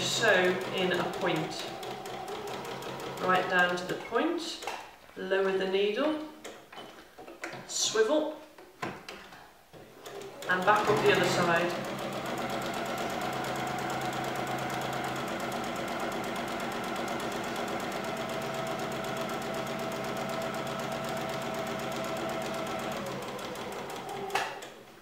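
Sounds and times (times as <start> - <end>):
sewing machine running: 0.0 - 4.0, 10.0 - 24.8.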